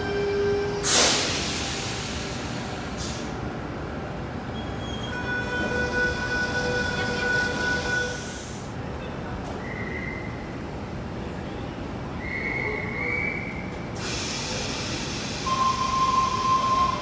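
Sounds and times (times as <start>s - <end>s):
electric train whine: 0.0s - 8.6s, 14.0s - 17.0s
hiss of air: 0.8s - 3.3s, 14.0s - 15.5s.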